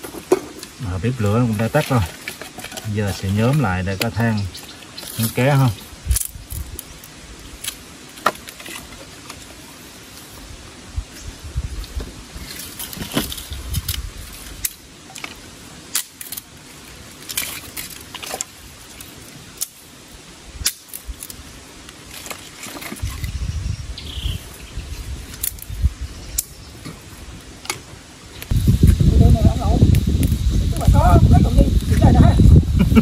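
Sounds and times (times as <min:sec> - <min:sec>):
firewood clattering: 0:00.0 - 0:10.3, 0:11.8 - 0:19.9, 0:20.6 - 0:23.4, 0:26.4 - 0:29.0.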